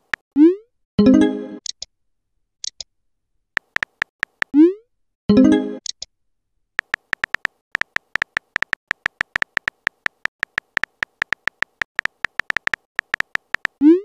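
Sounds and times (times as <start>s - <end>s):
on-screen keyboard clicks: 3.6s - 4.6s, 6.8s - 13.9s.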